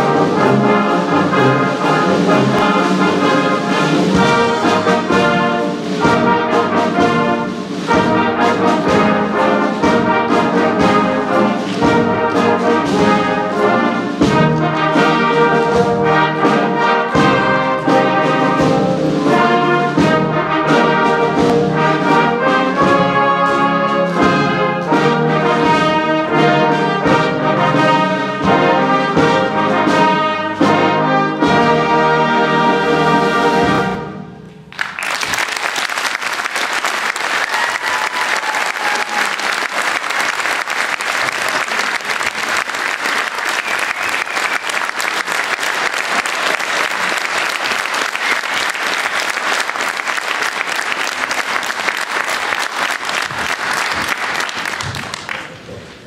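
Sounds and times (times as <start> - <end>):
wind band playing: 0.0 - 55.7
audience applause: 34.7 - 56.0.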